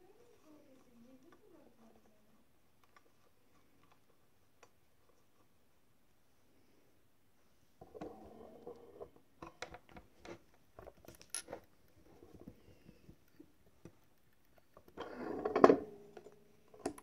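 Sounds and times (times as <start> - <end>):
small metal parts clinking: 11.0 - 11.7.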